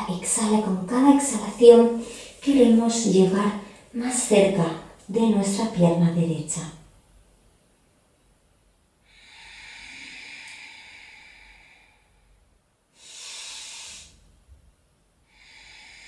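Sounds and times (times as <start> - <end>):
woman breathing slowly: 2.0 - 2.4, 9.0 - 14.4, 15.2 - 16.0.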